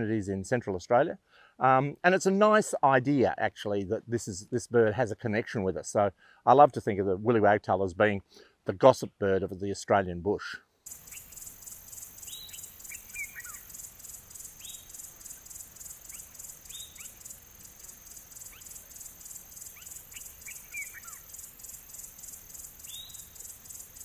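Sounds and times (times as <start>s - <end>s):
insects chirping: 10.8s - 24.0s
birds whistling calls: 10.9s - 24.0s.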